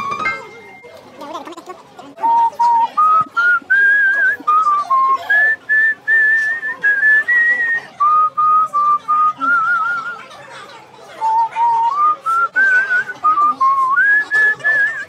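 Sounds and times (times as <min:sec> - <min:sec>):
person whistling a tune: 0:02.2 - 0:10.2, 0:11.2 - 0:15.0.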